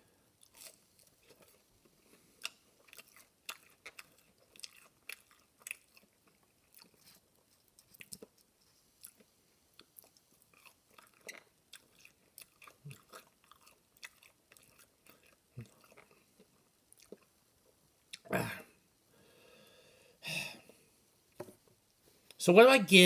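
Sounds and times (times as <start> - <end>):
chewing crunchy food: 0.4 - 18.2.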